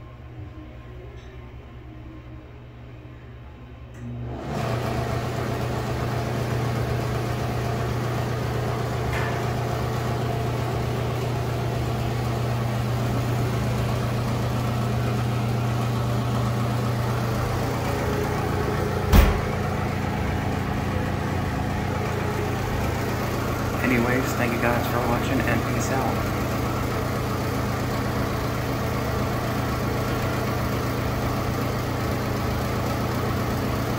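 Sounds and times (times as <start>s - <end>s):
exhaust fan running: 0.0s - 33.9s
brief knock: 19.1s - 19.5s.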